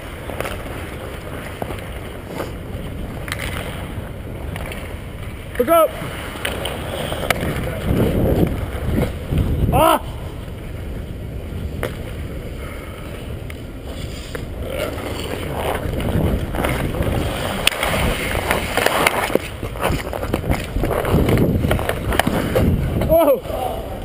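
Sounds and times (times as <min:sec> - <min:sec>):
hockey sticks and puck clacking: 0:00.0 - 0:10.8, 0:11.7 - 0:23.5
skates scraping on ice: 0:00.0 - 0:24.0
wind rumble on microphone: 0:06.8 - 0:24.0.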